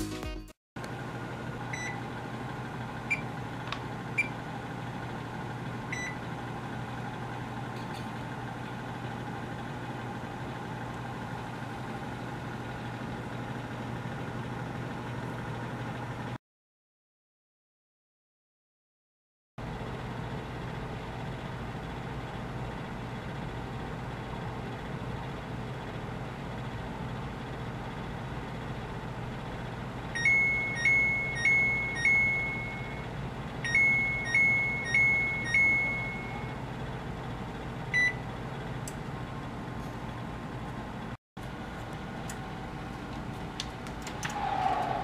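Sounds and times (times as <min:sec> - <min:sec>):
steady background hum: 0:00.8 - 0:14.8, 0:19.8 - 0:45.0
oven timer beeps: 0:01.7 - 0:02.0, 0:03.0 - 0:03.3, 0:04.1 - 0:04.4, 0:05.9 - 0:06.2, 0:30.2 - 0:36.6, 0:37.9 - 0:38.2.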